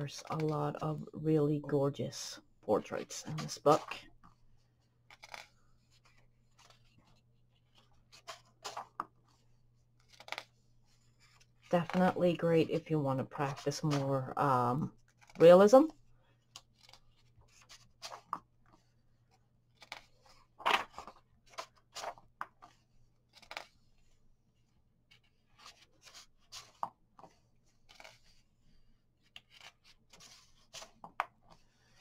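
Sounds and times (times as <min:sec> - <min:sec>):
paper pages rustling: 0:03.0 - 0:12.4, 0:15.0 - 0:15.6, 0:16.5 - 0:24.2, 0:25.1 - 0:28.5, 0:29.2 - 0:32.0.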